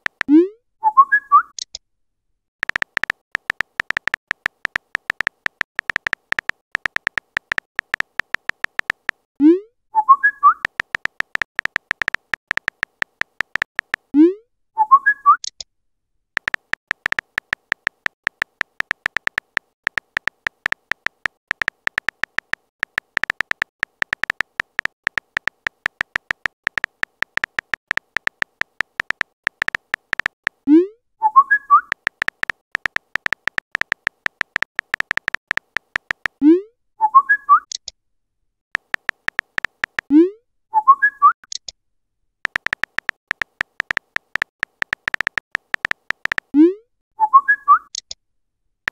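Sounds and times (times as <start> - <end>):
phone keyboard clicks: 0.0 - 0.3, 2.6 - 9.3, 10.5 - 14.1, 16.4 - 30.6, 31.5 - 36.4, 38.8 - 40.1, 42.4 - 46.5.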